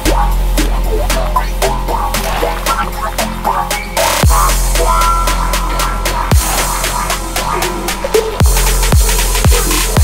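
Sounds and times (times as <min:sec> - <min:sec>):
electronic music with sub-bass: 0:00.0 - 0:10.0
hi-hat ticks: 0:00.0 - 0:10.0
deep kick drum: 0:03.2 - 0:06.9, 0:08.4 - 0:10.0.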